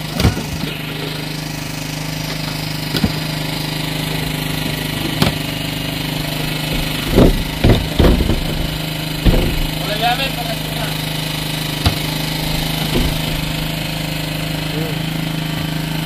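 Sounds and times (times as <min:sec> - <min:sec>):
generator engine humming: 0:00.0 - 0:16.0
short knocks: 0:06.1 - 0:10.7, 0:11.7 - 0:14.0.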